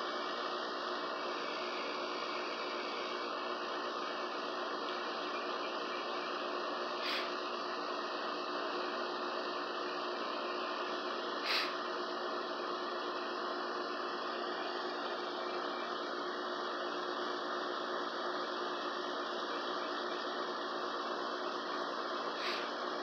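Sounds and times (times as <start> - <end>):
steady hum and hiss: 0.0 - 23.0.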